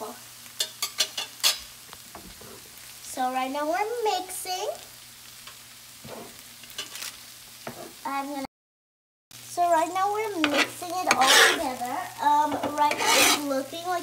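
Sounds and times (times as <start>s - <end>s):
vegetables sizzling on a griddle: 0.0s - 8.5s, 9.3s - 14.0s
wooden spatula scraping pan: 6.0s - 7.0s, 10.4s - 13.6s
person speaking: 9.6s - 14.0s.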